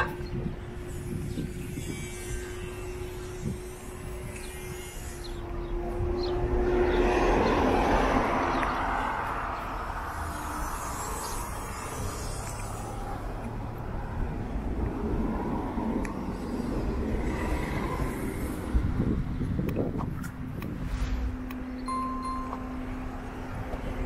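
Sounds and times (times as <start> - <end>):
vehicle driving past: 5.2 - 19.3.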